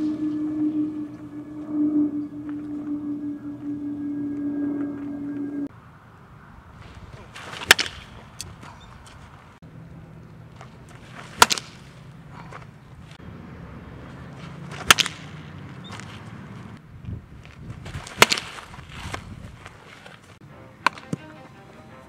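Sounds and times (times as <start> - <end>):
baseball bat hitting ball: 7.4 - 8.2, 11.3 - 11.8, 14.7 - 15.5.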